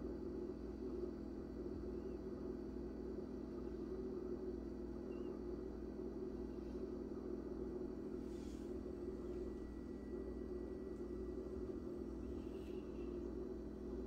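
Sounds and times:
steady low hum: 0.0 - 14.0
faint rumble: 6.4 - 14.0.

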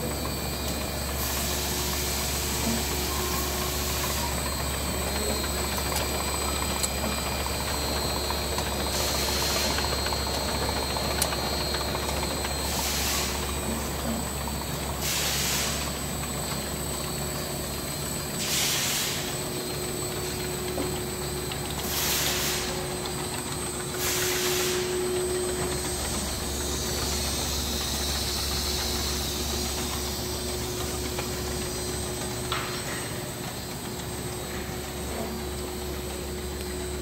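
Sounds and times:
machinery humming and whining: 0.0 - 37.0
compressed air hisses: 12.8 - 13.4, 15.0 - 15.9, 18.4 - 19.4, 21.9 - 22.8, 24.0 - 25.0.

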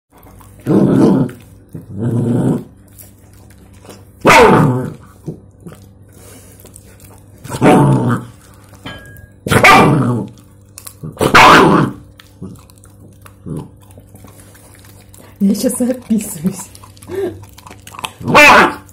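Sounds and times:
puppy growling barks: 4.2 - 5.2, 7.4 - 8.4, 9.4 - 18.9.

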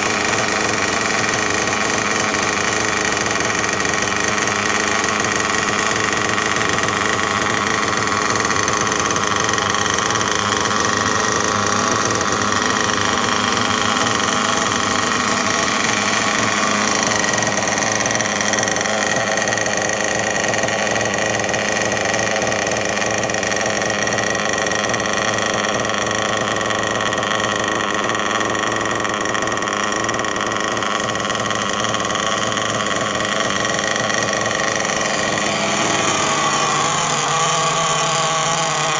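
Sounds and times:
nitro engine idling: 0.0 - 38.9.

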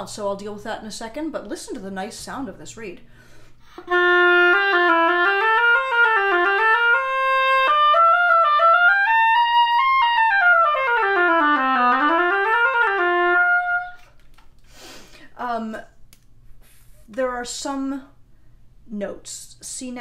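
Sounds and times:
oboe legato phrase: 3.8 - 14.0.

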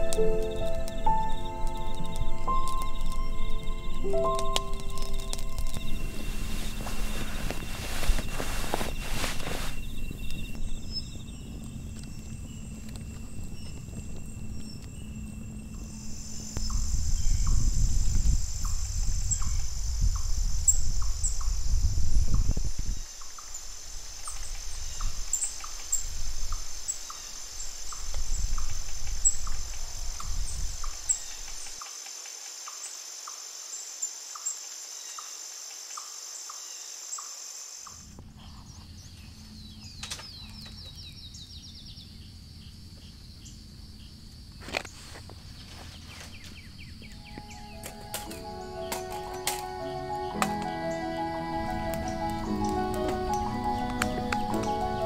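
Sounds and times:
low rumbling gusts: 0.0 - 31.8, 46.5 - 55.0
night insects chorus: 0.0 - 55.0.

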